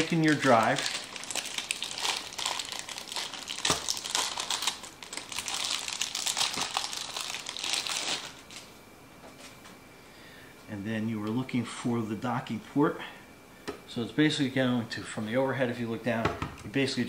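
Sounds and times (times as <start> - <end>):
metallic plastic bag crinkling: 0.0 - 8.7.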